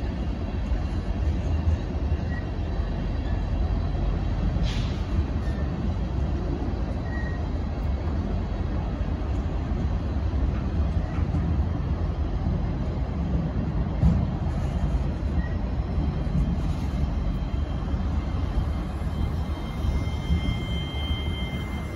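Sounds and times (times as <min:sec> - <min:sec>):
freight cars rolling on rails: 0:00.0 - 0:21.9.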